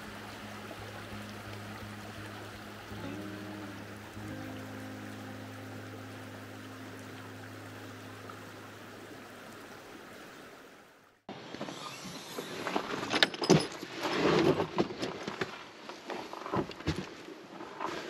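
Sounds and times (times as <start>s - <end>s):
low sustained music notes: 0.0s - 10.2s.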